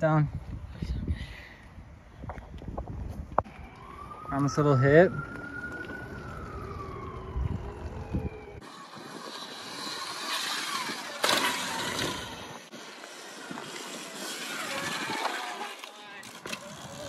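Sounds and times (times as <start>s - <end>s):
bike tyres rolling on pavement: 2.2s - 17.0s.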